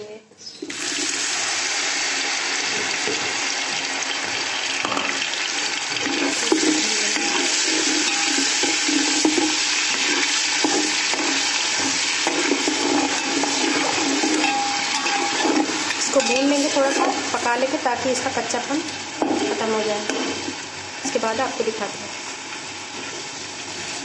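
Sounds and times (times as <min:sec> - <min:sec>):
paste sizzling in hot oil: 0:00.7 - 0:24.0
metal spoon scraping pot: 0:05.9 - 0:17.4.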